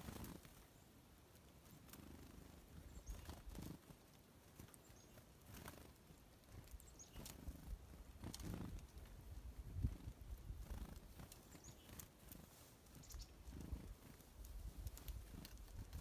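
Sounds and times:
faint rustles and soft knocks: 0.0s - 16.0s.

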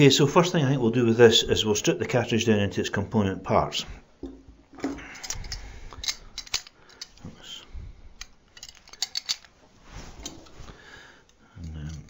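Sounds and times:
metal pliers clicking: 5.2s - 7.2s, 8.2s - 9.5s.

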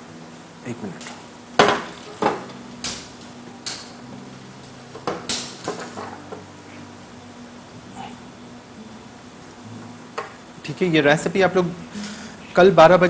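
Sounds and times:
dishes clinking and knocking: 1.6s - 3.0s, 4.9s - 6.4s.

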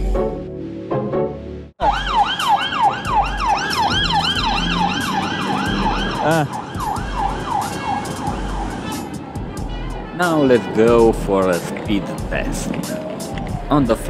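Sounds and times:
police siren yelping: 1.8s - 9.7s, 12.6s - 14.0s.

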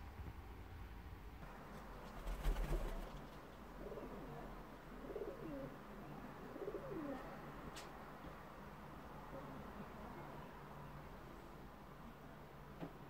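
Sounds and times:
pigeon cooing: 3.8s - 4.4s, 5.0s - 5.8s, 6.4s - 7.3s.

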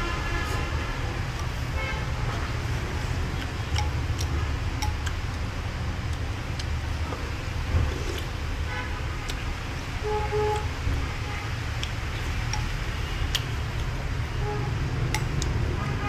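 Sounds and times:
low rumble of street traffic: 0.0s - 16.0s
vehicle horn toot: 10.0s - 11.5s, 14.3s - 14.8s.

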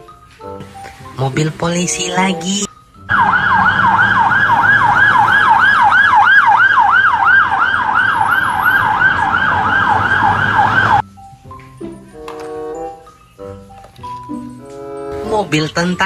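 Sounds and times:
traffic rumbling: 3.0s - 11.0s
police siren yelping: 3.1s - 11.0s.

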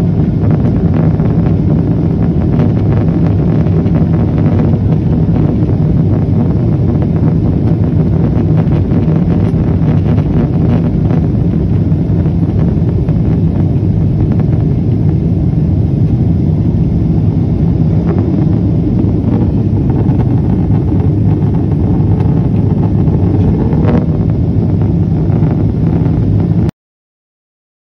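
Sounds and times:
jet airliner cabin rumble: 0.0s - 26.7s
low hum: 0.0s - 26.7s.

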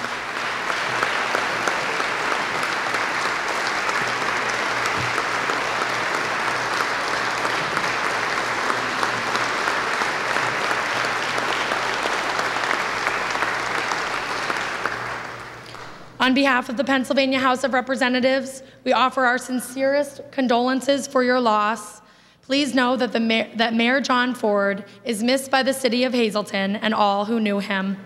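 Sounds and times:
crowd applauding: 0.0s - 16.2s.

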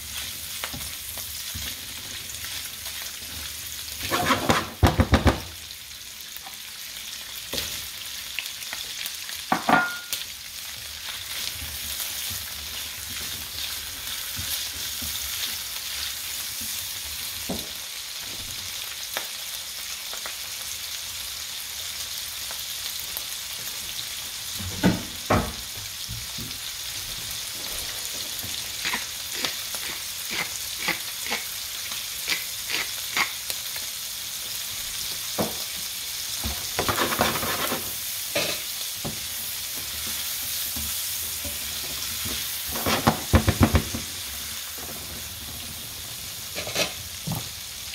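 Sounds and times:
food sizzling in oil: 0.0s - 47.9s.

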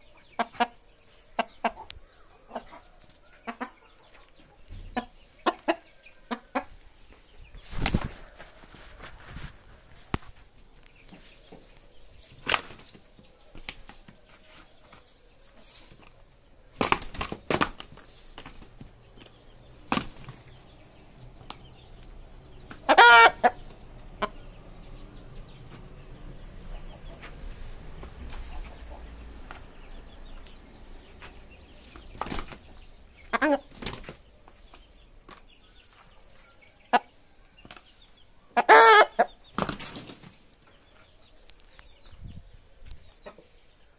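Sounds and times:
rooster wings slapping: 7.7s - 9.3s, 12.4s - 13.0s, 16.8s - 18.9s, 19.9s - 20.6s, 32.2s - 32.7s, 39.6s - 40.4s
rooster calls: 22.9s - 23.6s, 38.6s - 39.3s.

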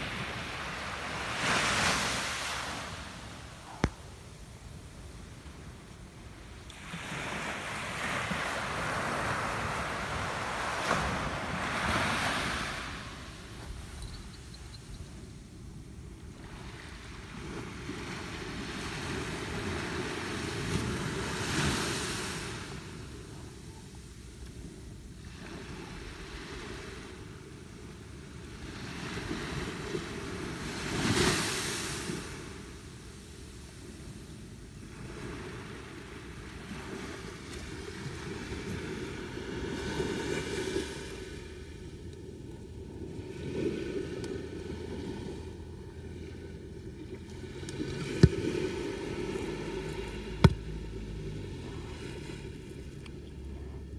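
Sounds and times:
wave breaking on shore: 0.0s - 3.9s, 6.7s - 14.1s
wave washing on beach: 0.0s - 14.8s, 16.2s - 24.2s, 25.2s - 53.9s.

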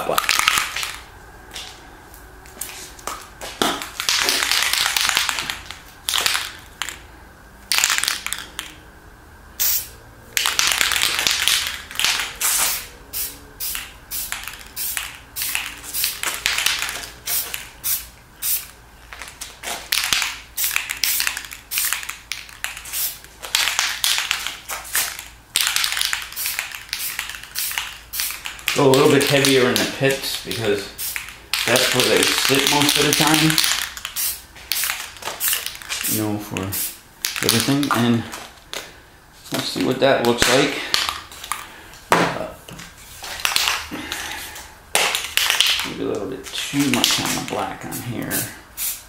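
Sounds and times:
aerosol spray can hissing: 9.6s - 9.9s, 10.6s - 18.8s, 19.6s - 37.0s, 47.9s - 49.0s.

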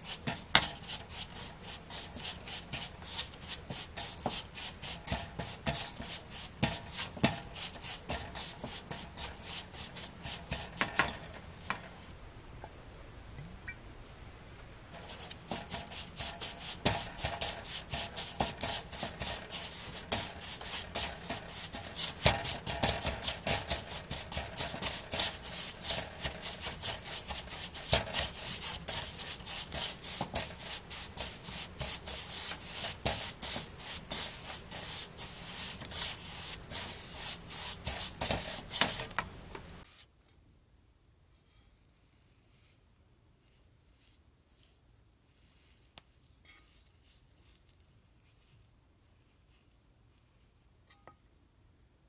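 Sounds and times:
spatula scraping in a metal bowl: 0.0s - 11.8s, 15.0s - 39.2s.

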